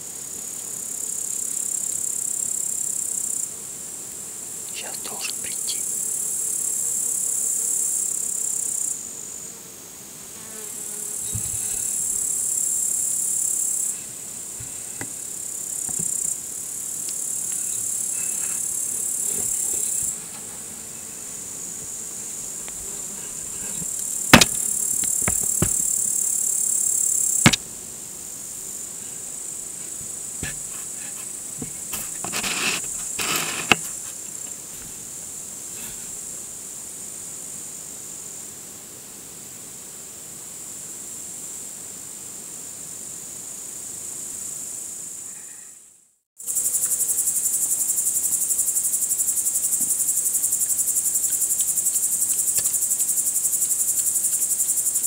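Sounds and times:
crickets chirring: 0.0 - 9.5, 10.4 - 38.2, 46.4 - 55.0
sharp knocks: 23.6 - 25.9, 27.4 - 27.7, 30.0 - 30.8.

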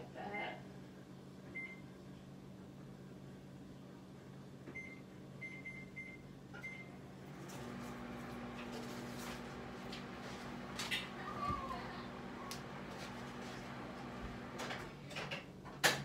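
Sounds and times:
microwave oven humming: 0.1 - 16.0
microwave keypad beeps: 1.6 - 1.8, 4.7 - 7.0.

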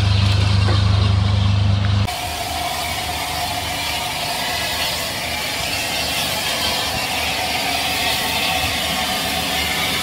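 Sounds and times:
steam hissing: 2.0 - 10.0.

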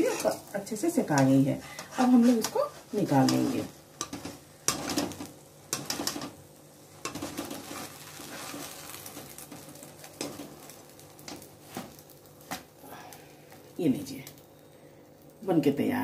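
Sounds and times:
steel spatula scraping a pan: 0.0 - 0.5, 1.1 - 6.3, 7.0 - 9.5
faint sizzle: 0.0 - 16.0.

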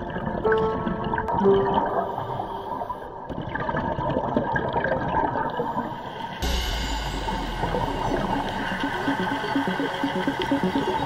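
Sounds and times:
underwater bubbles gurgling: 0.0 - 6.3.

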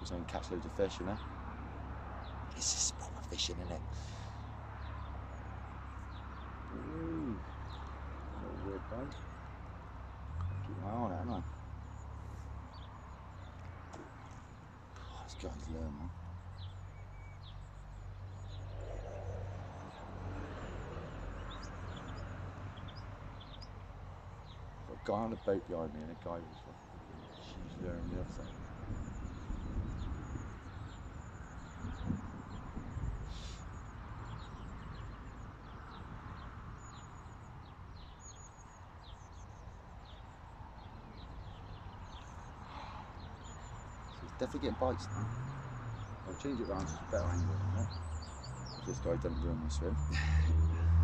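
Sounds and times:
soft outdoor hiss: 0.0 - 18.8
small birds chirping: 0.0 - 51.0.

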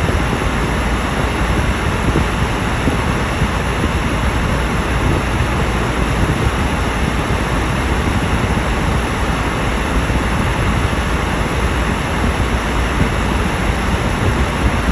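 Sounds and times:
wind against car body: 0.0 - 14.9.

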